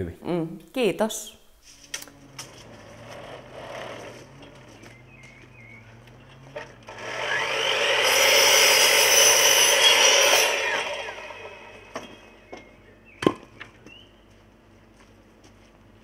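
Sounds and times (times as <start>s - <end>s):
mitre saw cutting wood: 2.2s - 12.4s.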